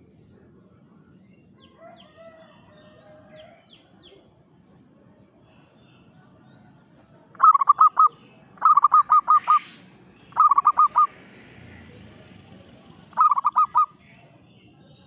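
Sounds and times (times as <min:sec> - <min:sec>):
dove cooing: 0:07.4 - 0:09.7, 0:10.3 - 0:11.1, 0:13.1 - 0:13.9.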